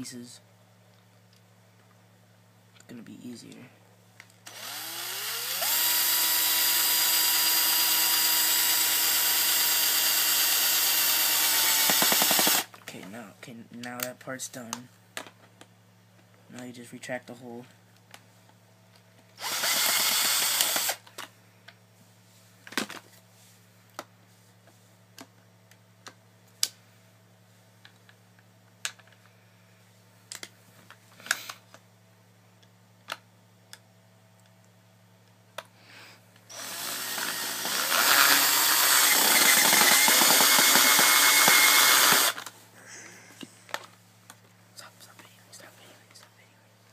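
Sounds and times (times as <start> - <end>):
power drill driving a screw: 4.5 - 12.7, 19.4 - 21.0, 36.5 - 42.5.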